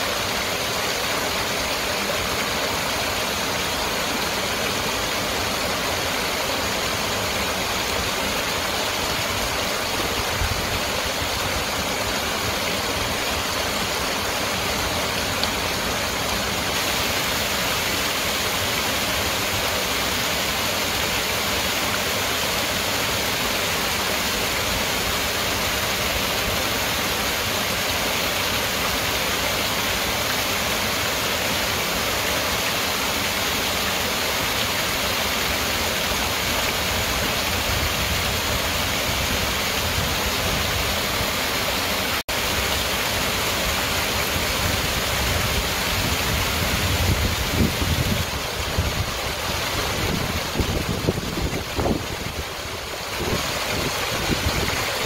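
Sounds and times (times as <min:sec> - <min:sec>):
waterfall cascading over rocks: 0:00.0 - 0:55.0.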